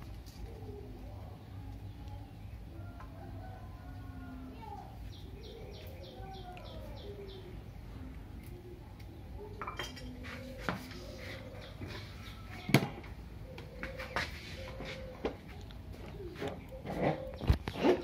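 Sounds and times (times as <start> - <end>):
bird chirping: 5.1 - 7.6
dishes and utensils clinking: 9.6 - 10.9.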